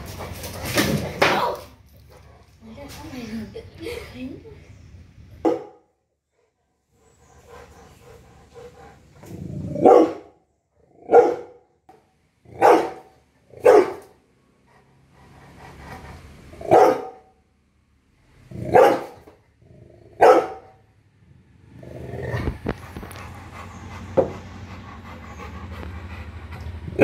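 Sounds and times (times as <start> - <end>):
dog barking: 5.4 - 5.9, 9.8 - 10.4, 11.0 - 11.7, 12.5 - 14.1, 16.6 - 17.3, 18.6 - 19.2, 20.2 - 20.8.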